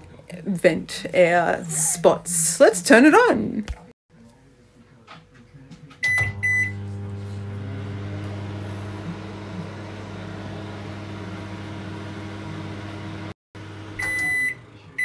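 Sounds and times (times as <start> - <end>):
microwave keypad beeping: 6.0 - 6.8, 14.0 - 14.6
microwave oven humming: 6.0 - 15.0.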